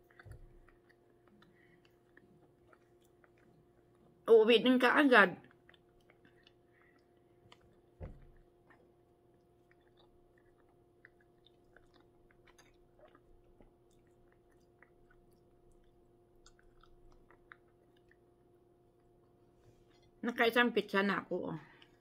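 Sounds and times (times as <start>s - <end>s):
person chewing food: 0.0s - 4.2s, 5.4s - 20.2s
low steady hum: 0.0s - 22.0s
soft thump: 8.0s - 8.4s.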